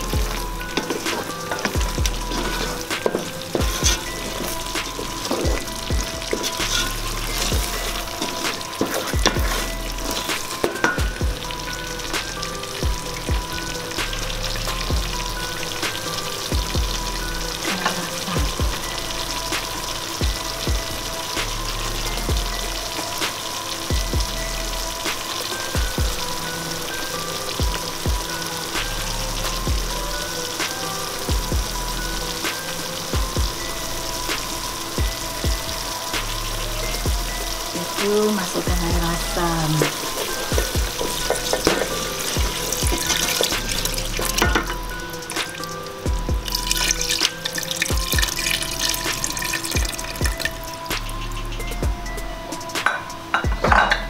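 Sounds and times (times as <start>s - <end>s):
background music with a beat: 0.0s - 54.0s
sauce sizzling: 0.0s - 54.0s
spatula scraping metal pot: 0.3s - 11.9s.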